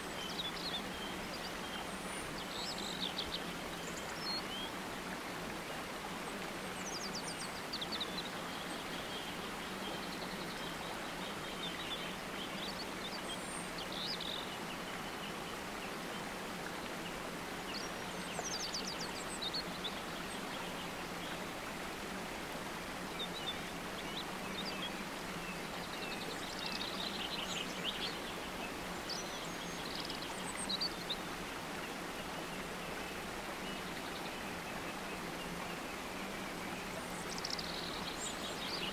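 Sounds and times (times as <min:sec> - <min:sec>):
constant hiss: 0:00.0 - 0:38.9
small birds chirping: 0:23.0 - 0:38.9.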